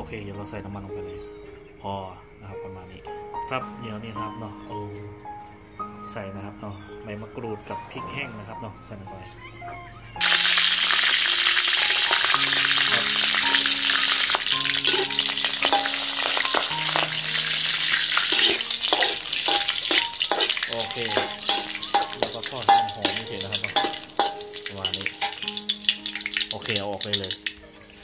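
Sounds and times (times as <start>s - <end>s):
chillies sizzling in hot oil: 10.2s - 28.0s
spatula scraping a wok: 14.8s - 26.5s.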